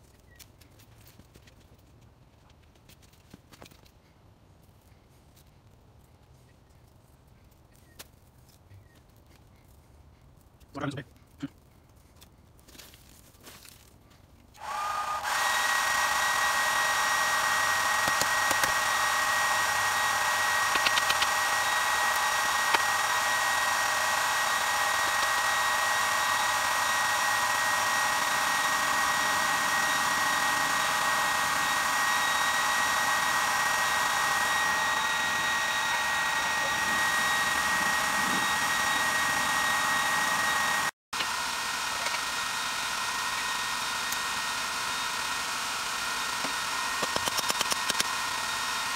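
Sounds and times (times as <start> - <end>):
electric air blower whining: 14.6 - 48.9.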